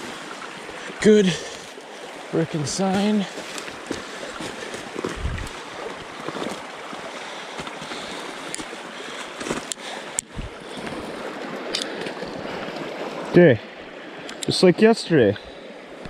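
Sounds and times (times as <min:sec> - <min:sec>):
stream flowing: 0:00.0 - 0:16.0
footsteps crunching through snow: 0:02.9 - 0:06.8, 0:08.6 - 0:09.7.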